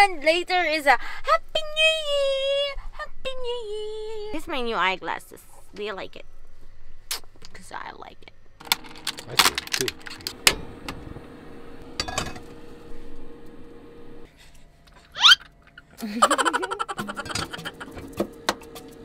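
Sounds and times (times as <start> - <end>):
baby squealing: 15.1 - 15.5.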